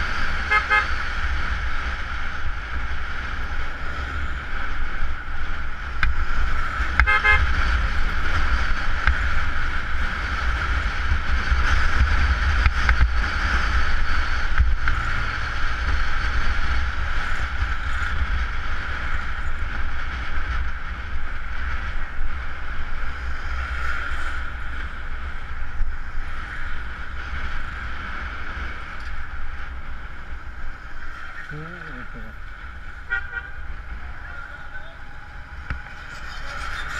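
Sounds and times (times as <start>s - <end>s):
motorcycle engine and road noise: 0.0s - 36.9s
wind rumble on microphone: 0.0s - 36.9s
horn honk: 0.4s - 1.0s, 7.0s - 7.6s, 33.0s - 33.7s.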